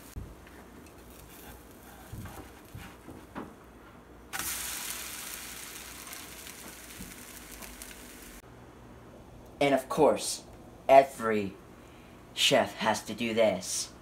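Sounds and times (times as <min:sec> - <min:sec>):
pancake sizzling in butter: 0:00.9 - 0:02.8, 0:04.3 - 0:08.4.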